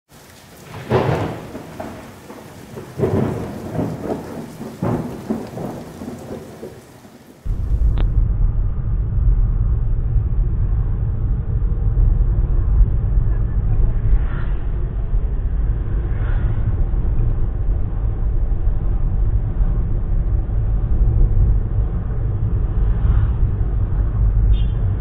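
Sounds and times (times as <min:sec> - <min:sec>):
rain: 0:00.1 - 0:25.0
thunder claps: 0:00.6 - 0:25.0
car engine and tyres rumbling: 0:07.5 - 0:25.0.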